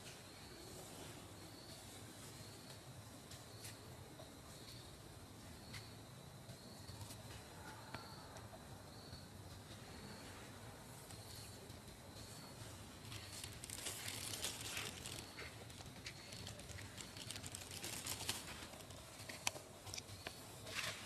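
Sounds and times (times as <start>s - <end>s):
crackly rustling: 11.0s - 21.0s.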